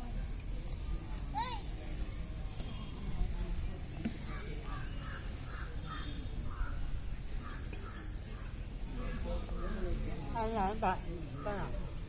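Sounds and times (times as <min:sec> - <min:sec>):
crows cawing: 0:04.3 - 0:08.6.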